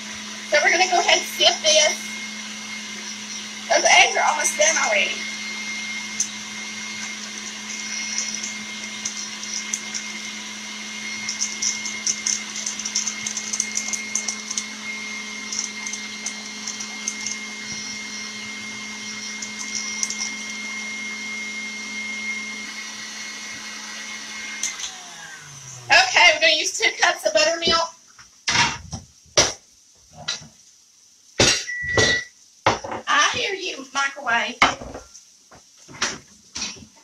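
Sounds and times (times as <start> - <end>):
flour sifter rasping: 0.0 - 21.9
stand mixer whipping: 0.0 - 26.4.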